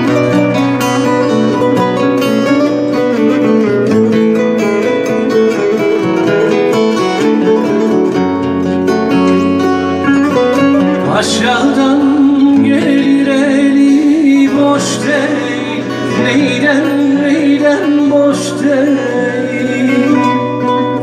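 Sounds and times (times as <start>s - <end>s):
strummed acoustic guitar: 0.0s - 21.0s
man singing folk song: 10.3s - 21.0s.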